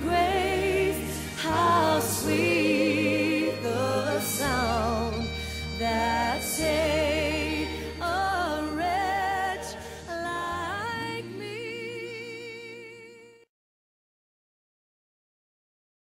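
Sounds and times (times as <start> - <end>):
sustained bass and keyboard: 0.0 - 12.4
person singing with vibrato: 0.0 - 13.4.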